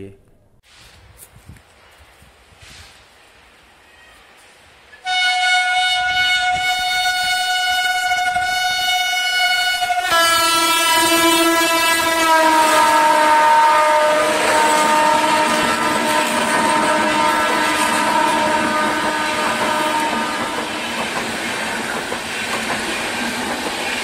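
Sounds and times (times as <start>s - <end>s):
locomotive horn blast: 5.0s - 20.6s
train coaches rushing and clattering: 14.1s - 24.0s.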